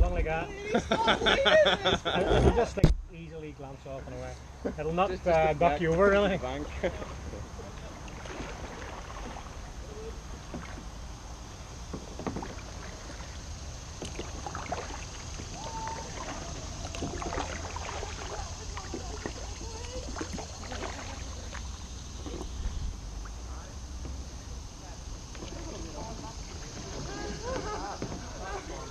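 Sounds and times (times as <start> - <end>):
paddle splashing in water: 6.6 - 11.0, 11.8 - 22.6, 25.3 - 28.9
water drips: 12.5 - 21.9.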